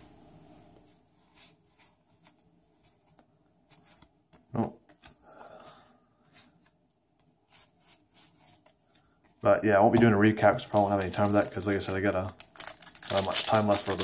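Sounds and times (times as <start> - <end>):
trading cards rustling and clicking: 6.3 - 14.0.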